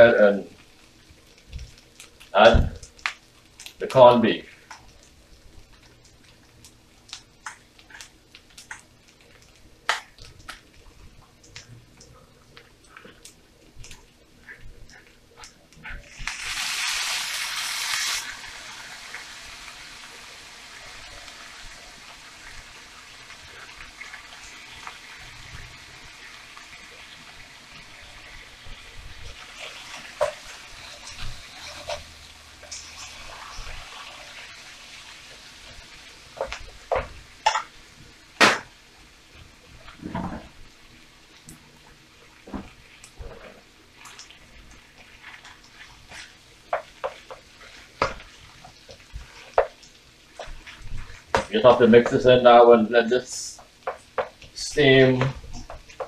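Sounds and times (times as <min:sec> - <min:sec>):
faint steady sizzle: 0:00.0 - 0:56.0
loud hiss from pan: 0:16.0 - 0:38.9.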